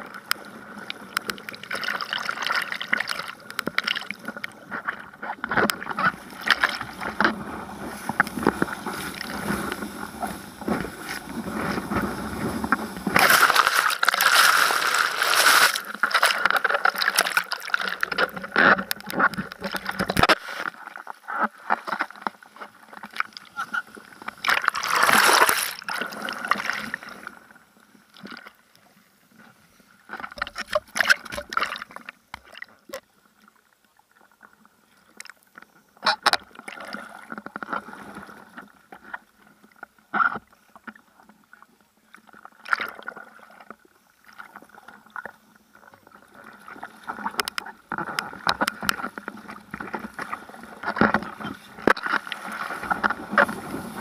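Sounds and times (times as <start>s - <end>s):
hands splashing in water: 13.2s - 17.8s.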